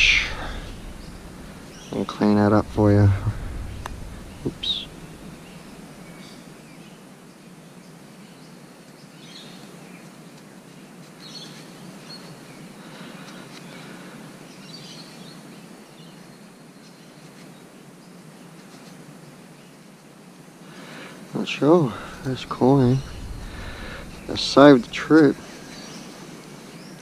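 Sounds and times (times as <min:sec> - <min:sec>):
faint bird chirps: 0:00.0 - 0:06.4
background hiss: 0:00.0 - 0:06.8, 0:18.5 - 0:27.0.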